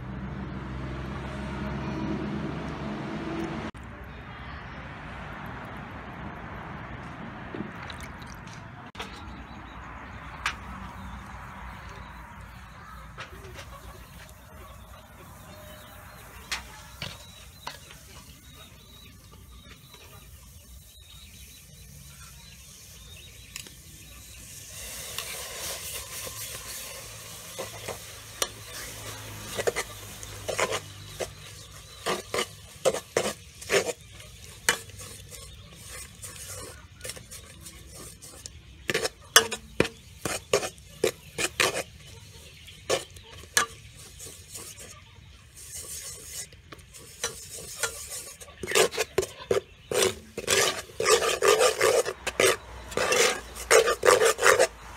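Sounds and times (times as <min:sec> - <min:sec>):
soft sizzle: 0:10.4 - 0:54.9
metal ladle scraping a pot: 0:19.6 - 0:54.9.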